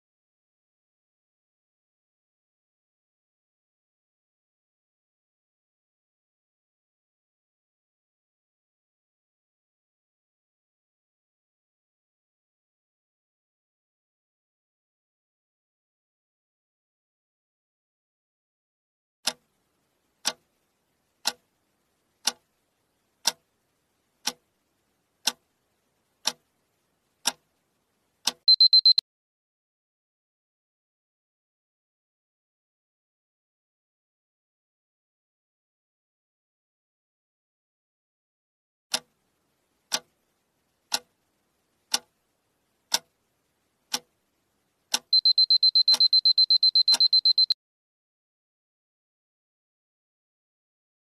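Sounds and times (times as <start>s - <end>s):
clock ticking: 20.2s - 20.6s, 21.2s - 21.6s, 22.2s - 22.6s, 23.2s - 23.6s, 24.2s - 24.6s, 25.2s - 25.5s, 26.2s - 27.5s, 28.2s - 29.0s, 39.8s - 42.2s, 43.9s - 44.3s, 44.9s - 47.6s
high-pitched beeps: 28.5s - 29.0s, 45.2s - 47.6s.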